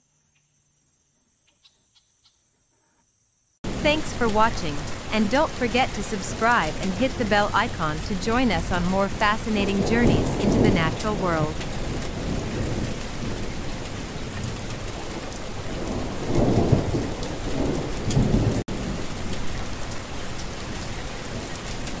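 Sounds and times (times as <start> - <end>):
thunder rumbling: 3.6 - 20.0
steady rain: 3.6 - 22.0.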